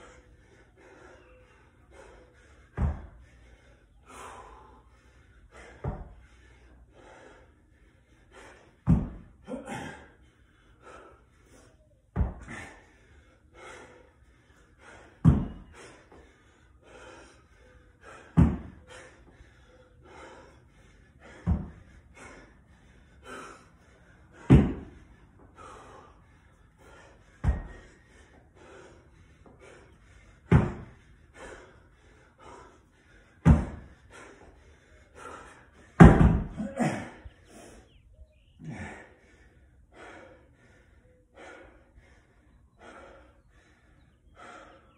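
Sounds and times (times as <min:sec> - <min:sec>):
hard breathing: 0:00.0 - 0:44.9
dumbbell thudding on rubber mat: 0:08.8 - 0:09.2, 0:12.1 - 0:12.5, 0:15.2 - 0:15.6, 0:18.4 - 0:18.7, 0:24.4 - 0:25.0, 0:27.4 - 0:27.8, 0:30.5 - 0:30.9, 0:33.4 - 0:33.8, 0:36.0 - 0:36.6.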